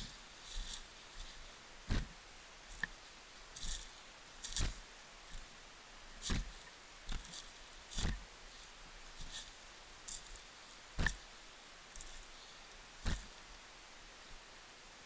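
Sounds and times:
footsteps on leaves and stones: 0:00.0 - 0:05.6, 0:06.2 - 0:11.3
leaves crackling: 0:00.0 - 0:14.7.

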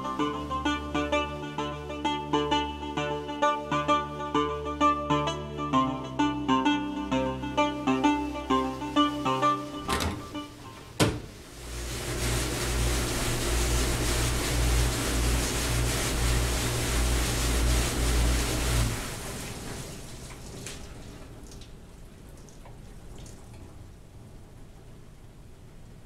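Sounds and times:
low motor hum: 0:00.0 - 0:26.0
water spraying: 0:08.1 - 0:24.2.

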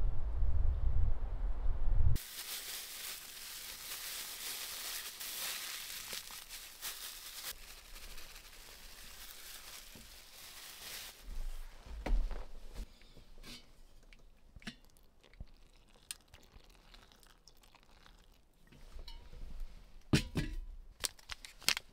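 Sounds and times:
low rumble: 0:00.0 - 0:02.2
plastic bag crinkling: 0:02.2 - 0:11.3.

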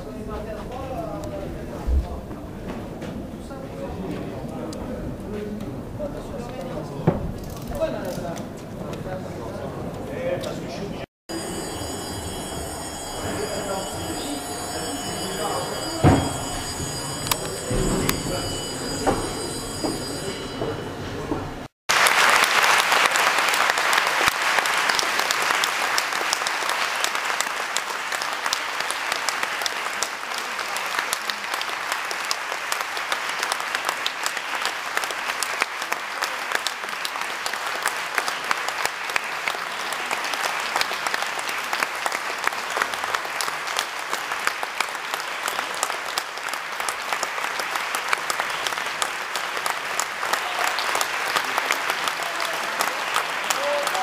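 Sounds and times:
audience applauding: 0:11.3 - 0:20.7, 0:21.9 - 0:54.0.

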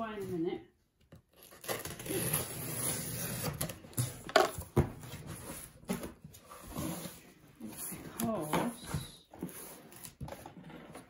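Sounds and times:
packing tape ripping off: 0:01.3 - 0:03.7.

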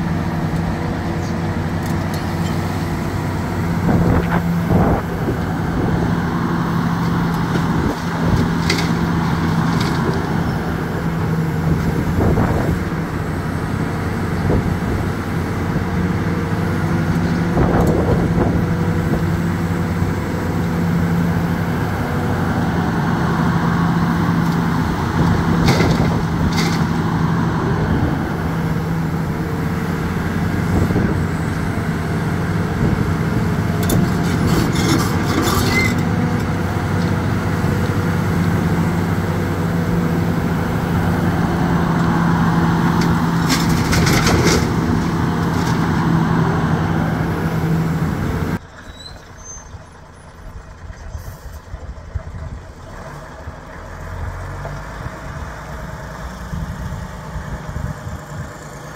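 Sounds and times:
excavator diesel engine running: 0:00.0 - 0:58.9
metallic clanks and rattles: 0:33.8 - 0:36.1.

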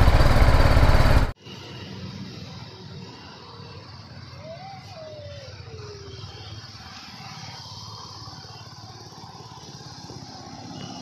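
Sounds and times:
motorcycle engine at low speed: 0:00.0 - 0:03.8, 0:06.4 - 0:11.0
traffic noise: 0:00.0 - 0:11.0.

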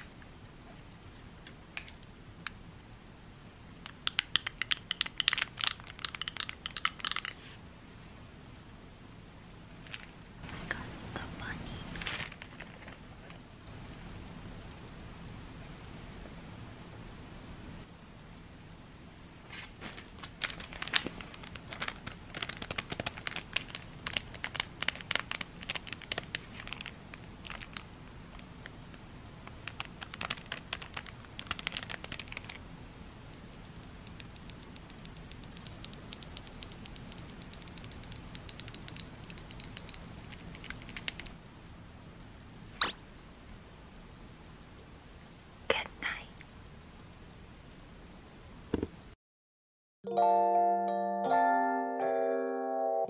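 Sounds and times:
plastic bag crinkling: 0:19.7 - 0:27.9, 0:29.6 - 0:32.6
sharp click: 0:42.8 - 0:43.0.

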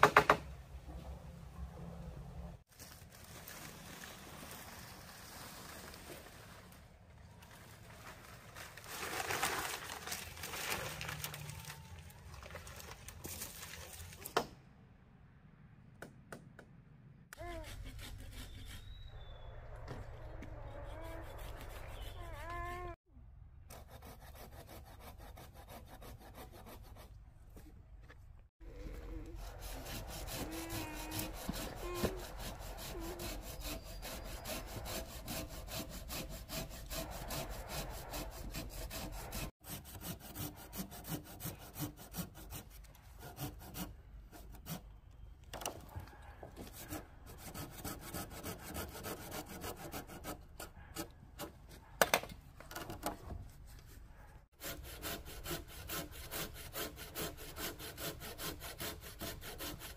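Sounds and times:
hand saw cutting bamboo: 0:17.4 - 0:18.9, 0:23.8 - 0:27.1, 0:29.2 - 0:44.8, 0:46.6 - 0:51.6, 0:54.6 - 0:59.9.

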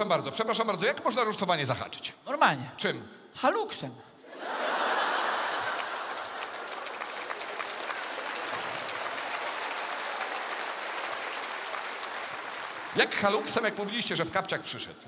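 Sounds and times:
audience laughing: 0:04.2 - 0:07.6
audience clapping: 0:04.8 - 0:14.5.

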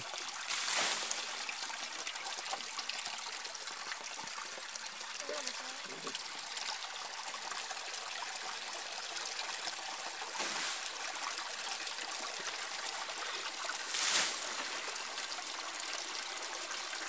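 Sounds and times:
stream trickling: 0:00.0 - 0:17.0.

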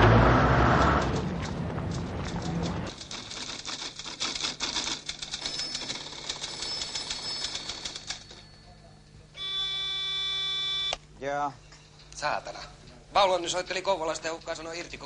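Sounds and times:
typewriter clattering: 0:00.8 - 0:08.4
electronic buzzer tone: 0:09.4 - 0:11.0.

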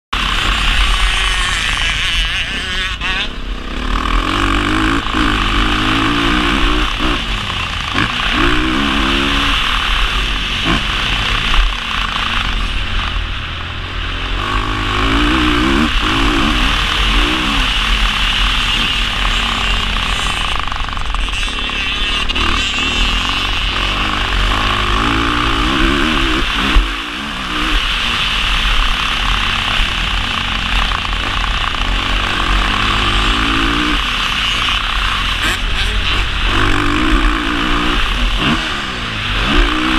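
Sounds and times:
constant rushing noise: 0:00.1 - 0:39.9
motocross engine revving: 0:00.1 - 0:39.9.

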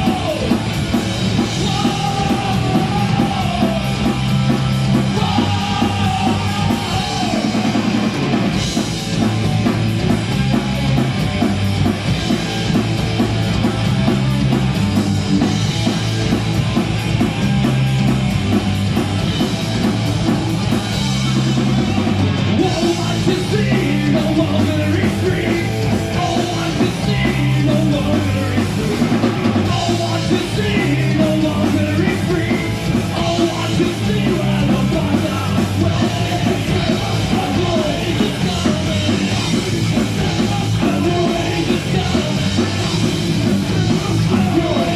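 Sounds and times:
bass guitar: 0:00.0 - 0:44.9
drum kit: 0:00.0 - 0:44.9
electric guitars: 0:00.0 - 0:44.9
person singing into microphone: 0:01.6 - 0:03.9, 0:05.1 - 0:07.6.

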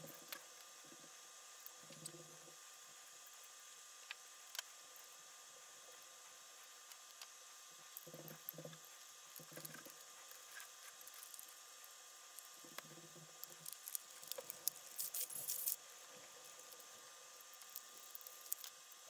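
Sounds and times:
plastic clicks and crackling scrapes: 0:08.0 - 0:11.6, 0:12.3 - 0:18.8
plastic parts rubbing: 0:13.0 - 0:15.8.

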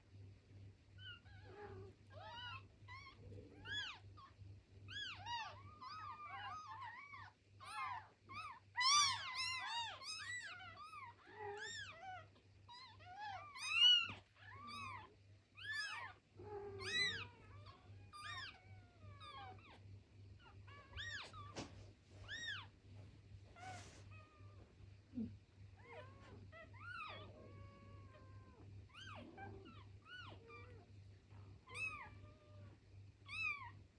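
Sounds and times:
kittens mewing: 0:04.9 - 0:19.8.

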